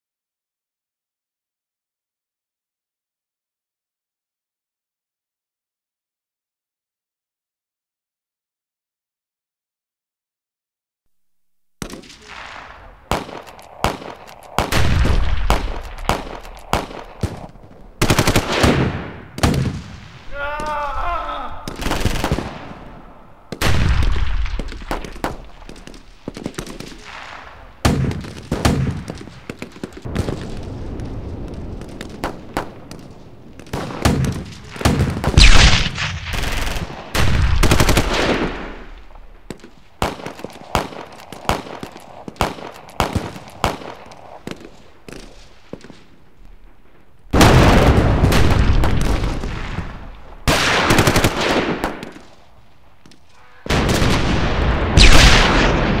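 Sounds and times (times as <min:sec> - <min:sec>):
gunshots and rapid fire bursts: 0:11.8 - 0:20.7, 0:21.6 - 0:46.2, 0:47.3 - 0:52.6, 0:53.6 - 0:56.0.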